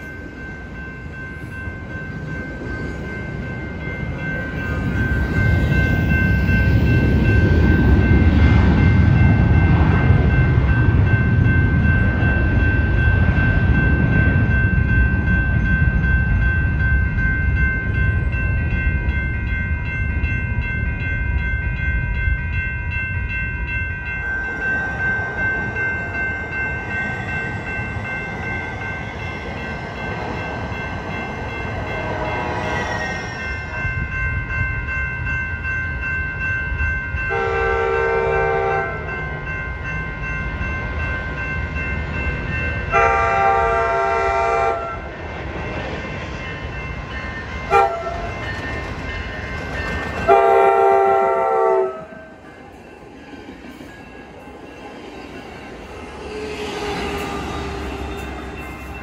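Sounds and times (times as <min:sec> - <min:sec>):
train low rumble: 0:00.0 - 0:59.0
train horn blasts: 0:37.3 - 0:39.1, 0:42.9 - 0:45.0, 0:47.7 - 0:48.3, 0:50.3 - 0:52.3.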